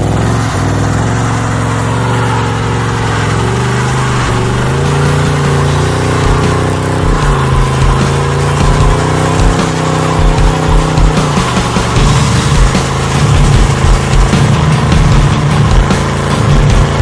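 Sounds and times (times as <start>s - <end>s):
engine revving hard: 0.0s - 17.0s
spinning tires hissing: 0.0s - 17.0s.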